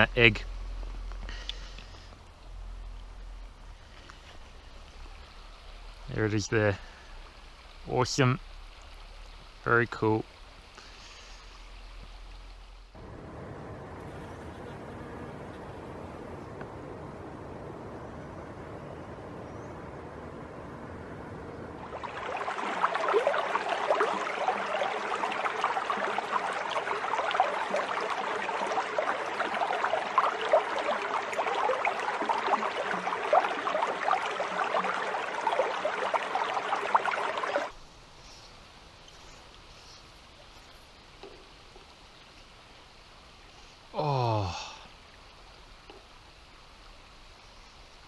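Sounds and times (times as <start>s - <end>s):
river water rushing over rocks: 21.8s - 37.8s.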